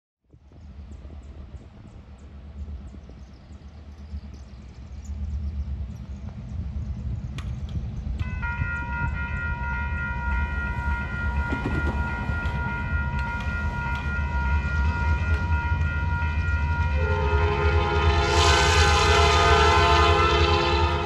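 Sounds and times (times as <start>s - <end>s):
low rumble of train: 0.2s - 21.0s
railroad crossing bell ringing: 8.2s - 18.0s
train horn: 8.2s - 21.0s.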